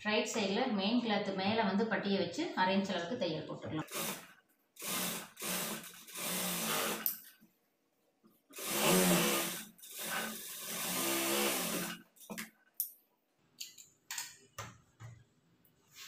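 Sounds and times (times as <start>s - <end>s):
sewing machine stitching: 3.8s - 7.2s, 8.6s - 12.0s.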